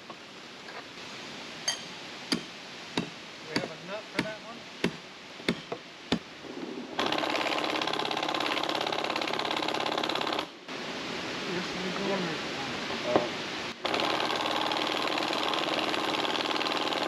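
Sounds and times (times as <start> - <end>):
power tool rattling buzz: 7.0 - 10.5, 13.8 - 17.0.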